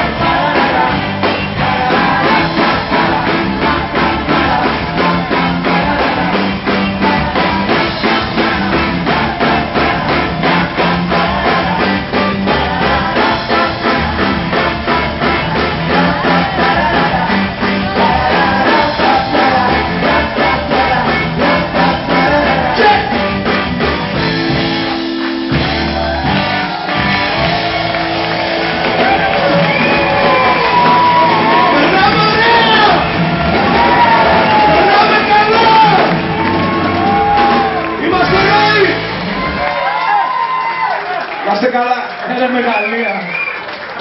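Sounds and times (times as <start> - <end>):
person singing: 0.0 - 23.6
live rock band playing: 0.0 - 41.7.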